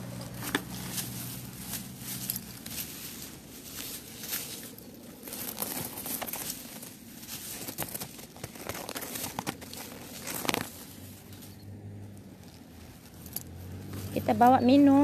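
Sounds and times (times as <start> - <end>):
grass rustling against microphone: 0.0 - 15.0.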